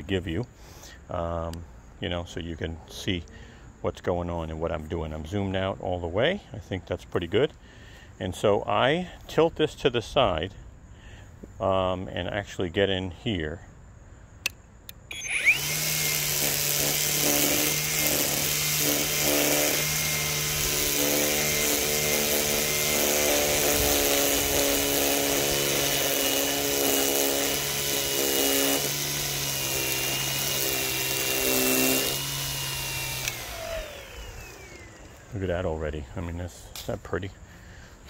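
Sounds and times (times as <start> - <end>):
string trimmer whirring: 14.4 - 36.9.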